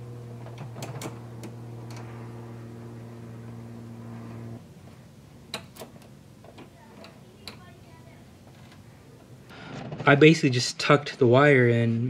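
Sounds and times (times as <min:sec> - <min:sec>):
electrical motor hum: 0:00.0 - 0:12.0.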